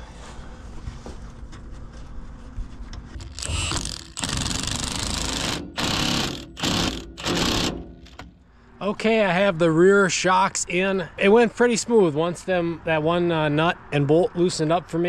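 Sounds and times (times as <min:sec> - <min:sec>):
impact wrench hammering bolt: 0:03.2 - 0:08.4.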